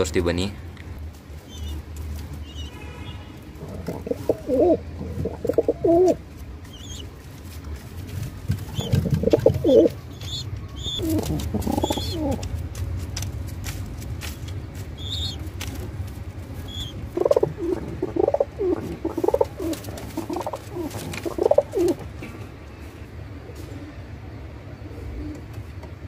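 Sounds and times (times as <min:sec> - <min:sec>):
low steady hum: 0:00.0 - 0:26.0
pigeon cooing: 0:03.6 - 0:06.2, 0:08.7 - 0:12.5, 0:16.7 - 0:22.1.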